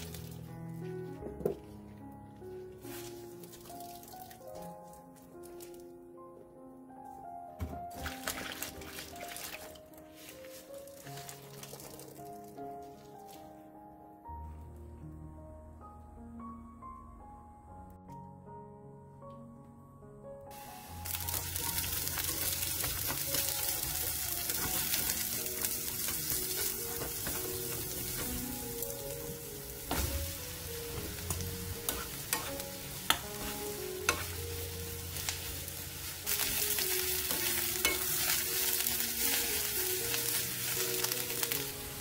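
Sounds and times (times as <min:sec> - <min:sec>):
vegetables sizzling in hot oil: 0:20.5 - 0:42.0.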